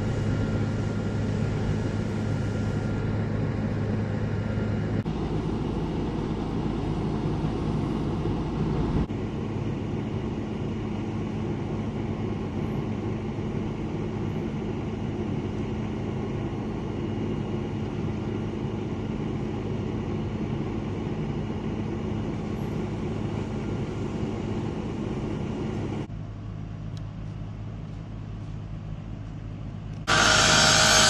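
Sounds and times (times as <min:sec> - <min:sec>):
fire engine running: 0:00.0 - 0:31.0.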